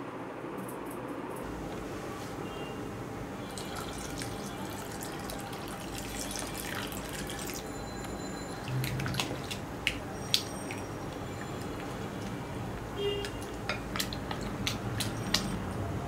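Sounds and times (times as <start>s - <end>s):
milk pouring into glass bowl: 3.5s - 12.0s
spatula stirring mixture: 3.5s - 15.6s.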